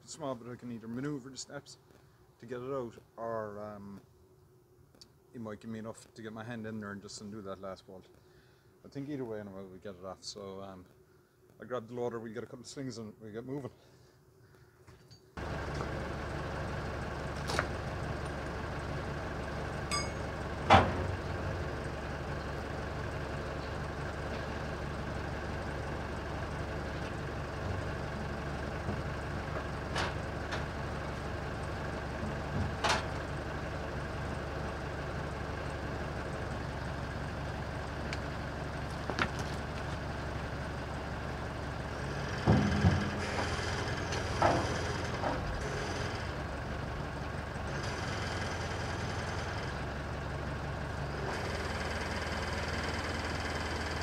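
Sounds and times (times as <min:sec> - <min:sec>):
diesel engine idling: 0:15.4 - 0:54.0
sharp metallic knocks: 0:19.9 - 0:21.1, 0:42.4 - 0:43.4.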